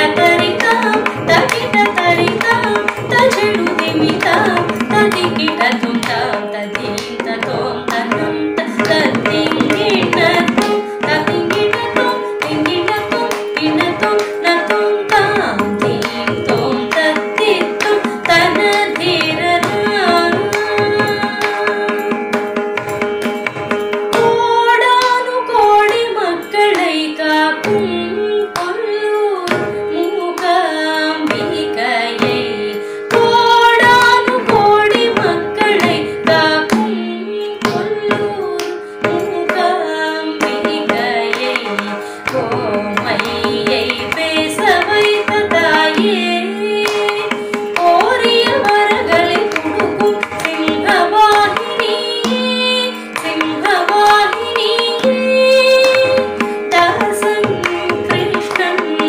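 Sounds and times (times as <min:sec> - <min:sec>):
woman singing: 0:00.0 - 0:59.0.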